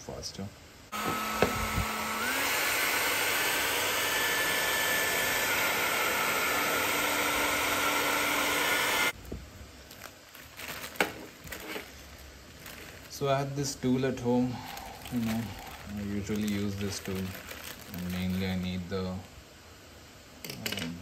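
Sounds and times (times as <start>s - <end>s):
hair dryer running: 0.9s - 9.2s.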